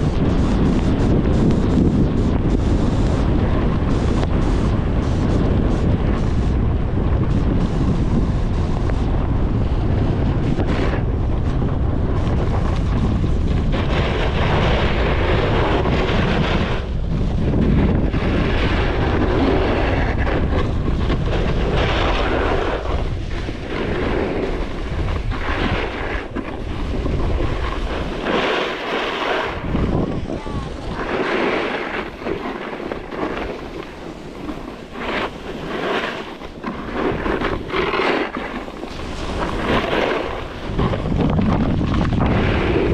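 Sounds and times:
wind buffeting microphone: 0:00.0 - 0:42.9
skis hissing on snow: 0:21.4 - 0:41.1.

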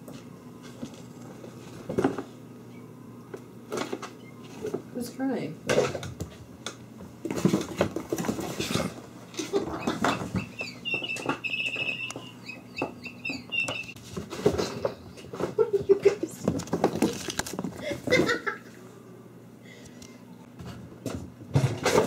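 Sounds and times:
kittens scampering on wooden floor: 0:07.2 - 0:18.4
kittens chirping: 0:09.4 - 0:14.0.

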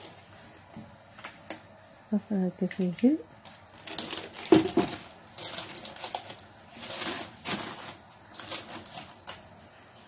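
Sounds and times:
parchment paper rustling: 0:03.4 - 0:10.0.

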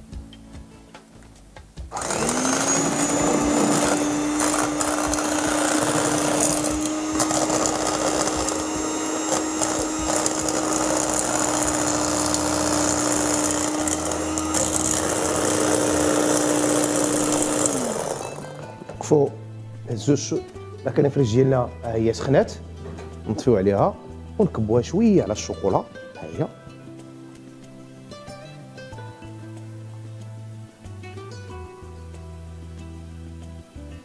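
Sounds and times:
electric hand mixer humming: 0:01.9 - 0:18.8.

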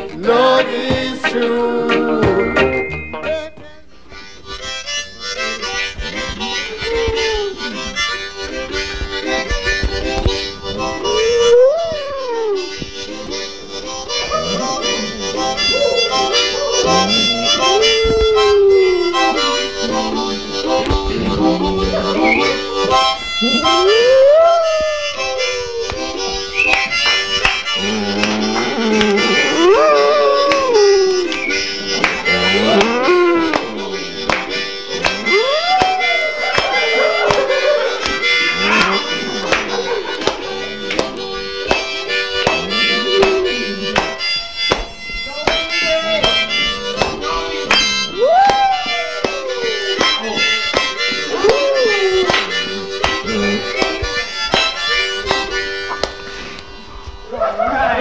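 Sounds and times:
harmonica playing chords: 0:00.0 - 0:58.0
reedy free-reed music: 0:00.0 - 0:58.0
dog howling: 0:06.5 - 0:08.0, 0:10.8 - 0:12.8, 0:14.1 - 0:20.4, 0:21.1 - 0:22.7, 0:23.3 - 0:26.4, 0:27.8 - 0:34.3, 0:35.1 - 0:40.2, 0:42.4 - 0:44.3, 0:45.8 - 0:54.2.

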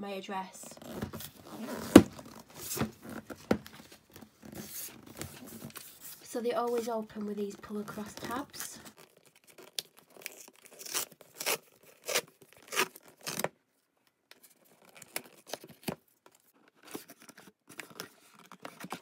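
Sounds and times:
cardboard rustling and scraping: 0:00.8 - 0:09.6
cardboard tear strip ripping: 0:09.0 - 0:13.5.

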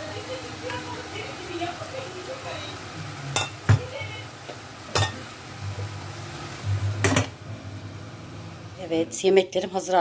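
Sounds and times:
low steady hum: 0:05.0 - 0:09.5.

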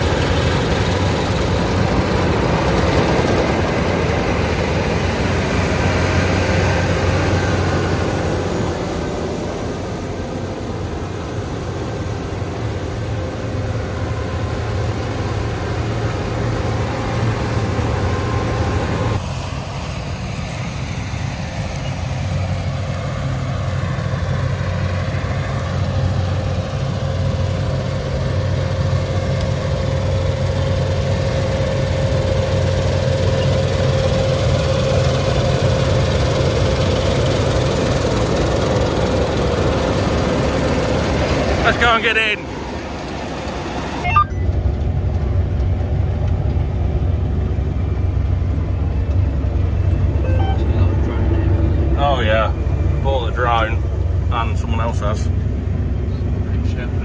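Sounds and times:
combine harvester engine drone: 0:00.0 - 0:57.0.

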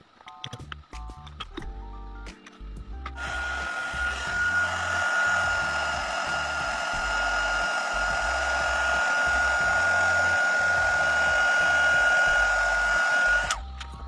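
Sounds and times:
heat gun blowing with high whine: 0:03.2 - 0:13.7.

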